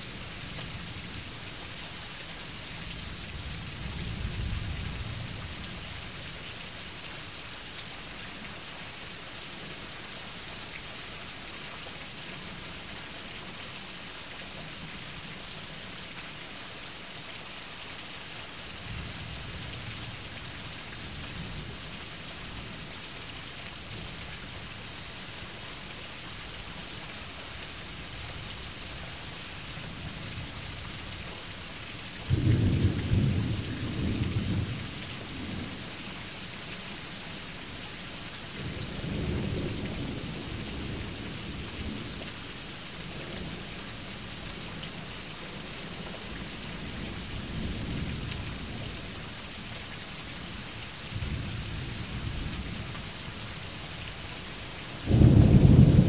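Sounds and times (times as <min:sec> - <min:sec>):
steady rain: 0:00.0 - 0:56.0
low thunder rumbling: 0:55.0 - 0:56.0
loud thunderclap: 0:55.1 - 0:56.0.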